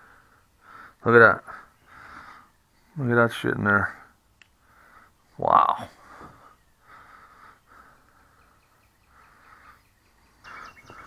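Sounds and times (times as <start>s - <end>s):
close breathing: 0.0s - 3.0s, 3.9s - 11.0s
bird chirping: 6.2s - 11.0s.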